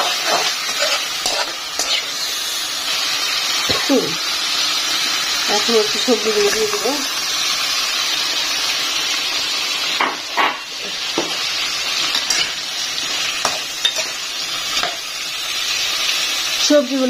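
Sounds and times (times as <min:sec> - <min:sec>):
spatula scraping a pan: 0:00.0 - 0:02.4
vegetables sizzling in oil: 0:00.0 - 0:17.0.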